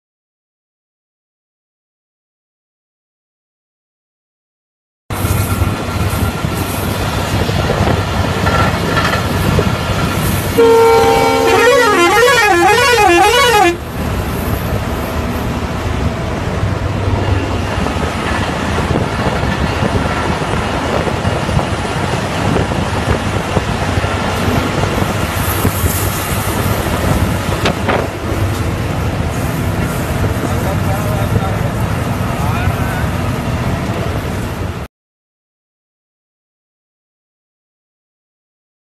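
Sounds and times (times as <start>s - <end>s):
bus engine and road noise: 5.1s - 34.9s
bus horn: 10.5s - 13.9s.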